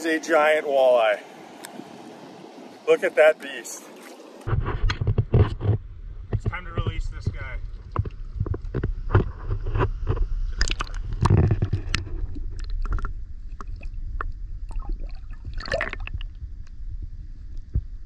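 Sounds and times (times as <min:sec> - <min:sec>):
river water splashing and gurgling: 0:00.0 - 0:04.6, 0:07.6 - 0:16.5.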